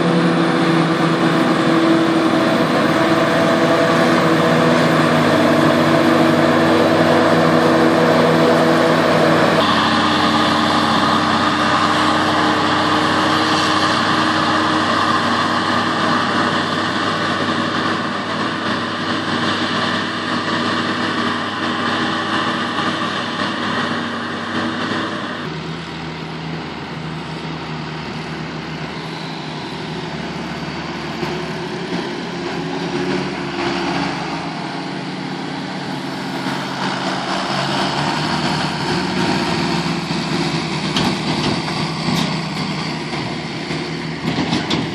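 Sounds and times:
tractor engine running: 0.0s - 44.9s
forage harvester chopping: 4.8s - 25.1s, 38.0s - 44.9s.

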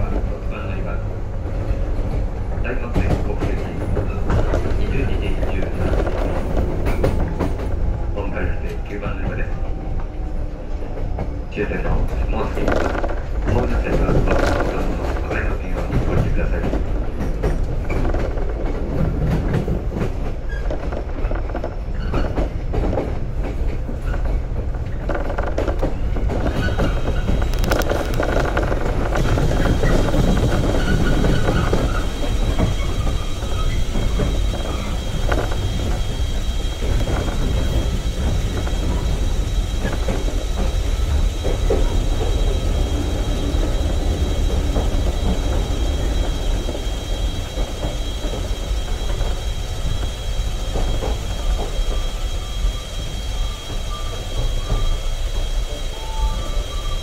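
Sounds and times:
train wheels rumbling on rail: 0.0s - 57.0s
clicking over rail joints: 12.0s - 36.1s
high-pitched squeal: 26.4s - 57.0s.

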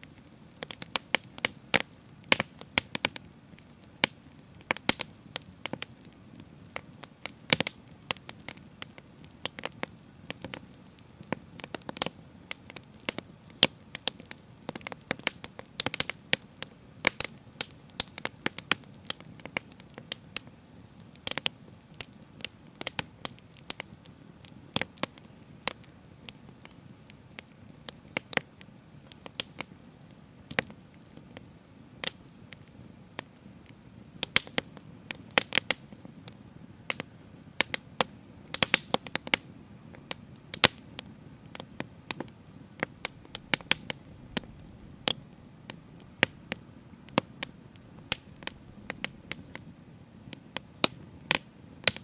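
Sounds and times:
fire crackling: 0.0s - 52.0s
low rush of flame: 32.0s - 52.0s.

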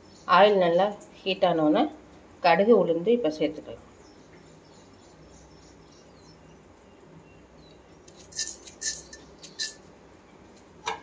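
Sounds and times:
seeds clinking and crackling in oil: 7.7s - 9.9s.

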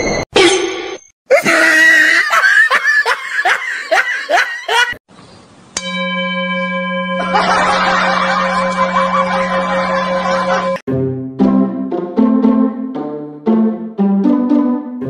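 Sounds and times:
person laughing: 1.3s - 5.0s, 7.3s - 10.8s
steady held tone: 5.8s - 10.8s.

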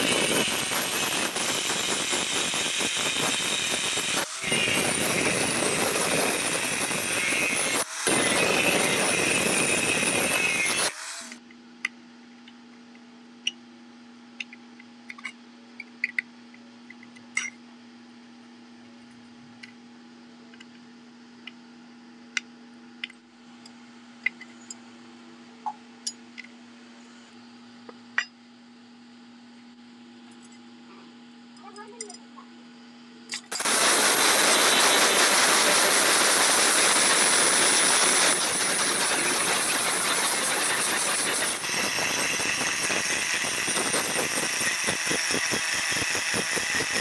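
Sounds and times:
angle grinder grinding steel: 0.0s - 11.4s, 33.5s - 47.0s.

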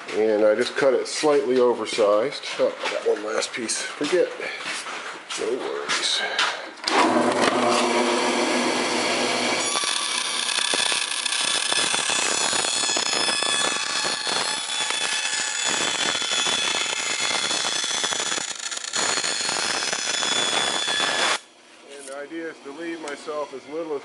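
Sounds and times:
bandsaw cutting aluminum sheet: 6.9s - 21.5s.

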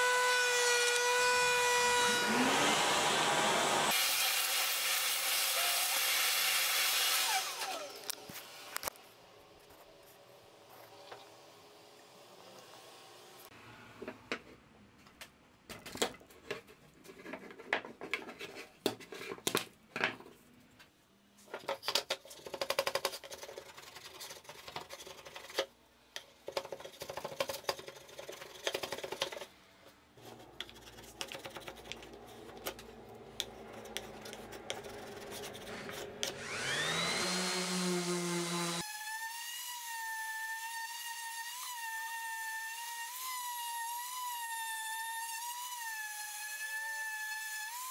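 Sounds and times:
orbital sander whining: 0.0s - 4.2s, 35.7s - 38.9s
chisel scraping and cracking wood: 30.2s - 36.4s.

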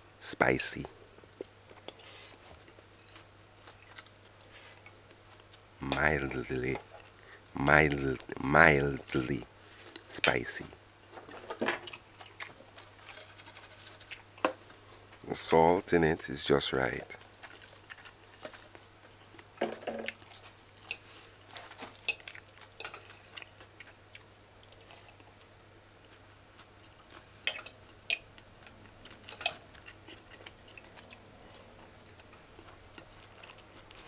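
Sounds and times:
chewing: 1.4s - 5.6s, 11.8s - 14.8s, 17.0s - 34.0s.

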